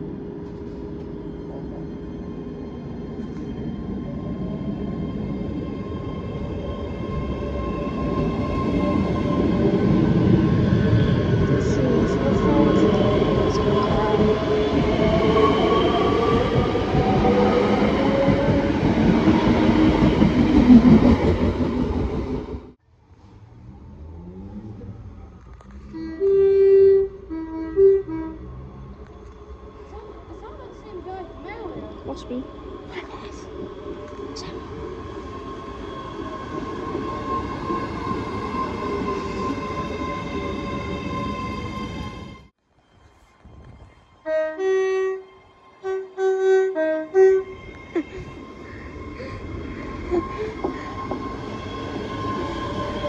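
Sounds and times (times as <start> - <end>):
train wheels rumbling on rails: 0.0 - 22.8, 47.6 - 53.0.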